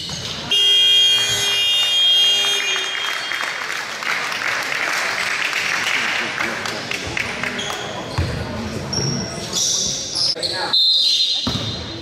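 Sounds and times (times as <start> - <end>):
scoreboard buzzer blast: 0.5 - 3.0
crowd applause: 1.2 - 7.6.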